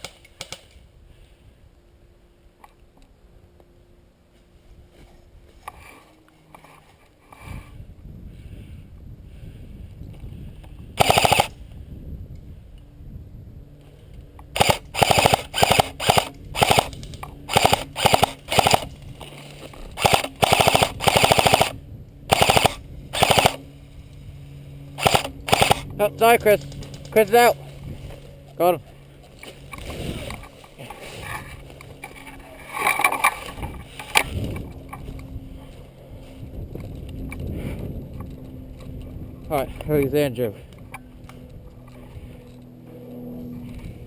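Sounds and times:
airsoft gun full auto bursts: 11.0 - 11.6, 14.5 - 18.9, 20.0 - 23.6, 25.0 - 25.8.

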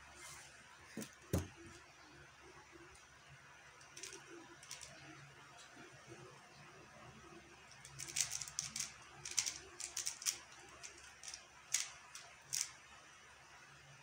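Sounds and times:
puzzle cube plastic clicks: 3.9 - 5.0, 7.7 - 12.8.

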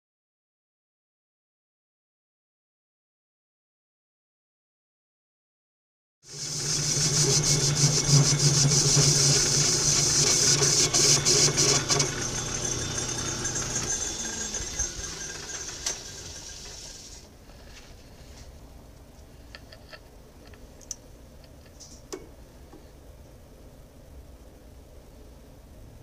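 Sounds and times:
high hiss of cutting: 6.3 - 17.2
metal lathe motor hum: 6.3 - 17.2.

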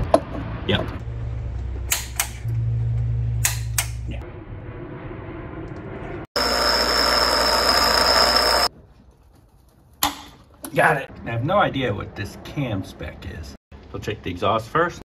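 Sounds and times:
low hum: 1.0 - 8.7
bench grinder grinding steel: 6.4 - 8.7.

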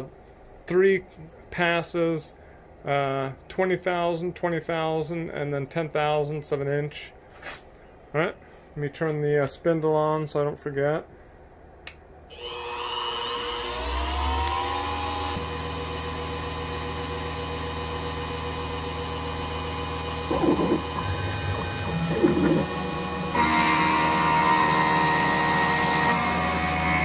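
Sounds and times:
mill spindle motor whine: 12.3 - 27.0
rough irregular machining sounds: 20.3 - 26.6.

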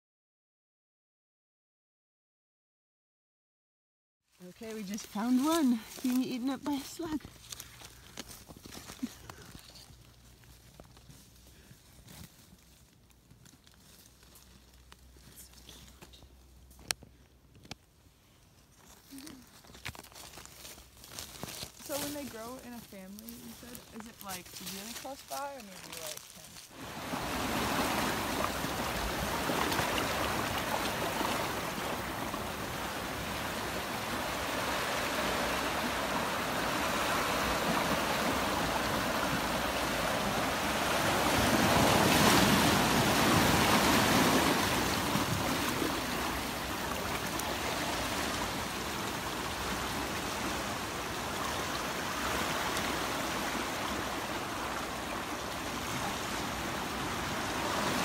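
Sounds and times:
surf washing among rocks: 21.8 - 58.0.

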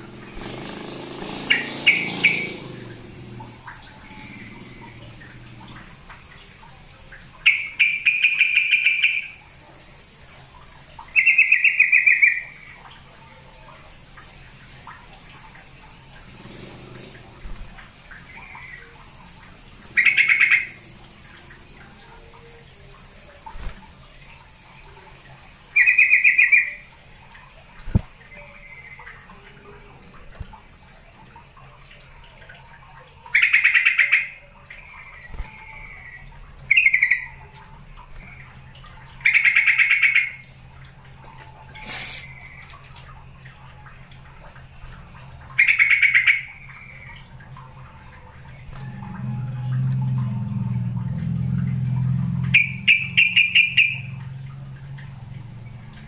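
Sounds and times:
bird bubbly chattering call: 0.1 - 9.5, 11.0 - 12.8, 16.3 - 22.9, 24.7 - 27.0, 33.3 - 42.8, 45.5 - 47.4, 52.3 - 54.7.

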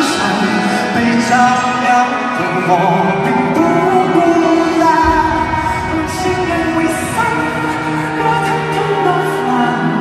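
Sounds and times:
live pop ballad band: 0.0 - 10.0
deep bass: 5.0 - 9.1.

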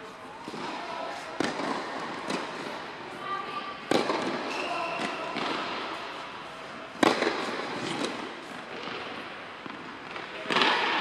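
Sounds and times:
tennis ball hits echoing: 1.4 - 2.7, 3.9 - 6.0, 7.0 - 11.0.

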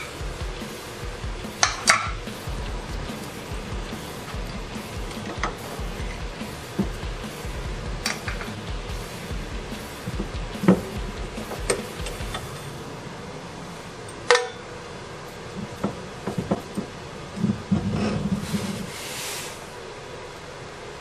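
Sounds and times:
ringing metal clank: 14.3 - 14.7
metal scraping on metal: 17.4 - 19.6.

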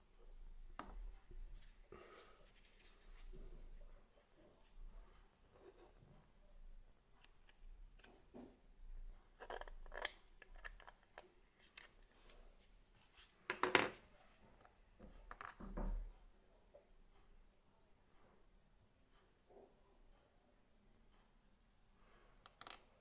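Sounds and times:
small parts clicking and tapping: 9.3 - 12.2, 22.4 - 23.0.

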